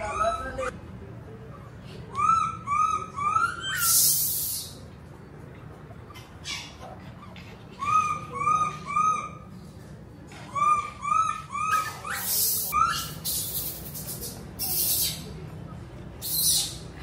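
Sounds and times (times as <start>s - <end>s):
monkey calling: 2.2s - 4.8s, 10.5s - 15.3s, 16.2s - 17.0s.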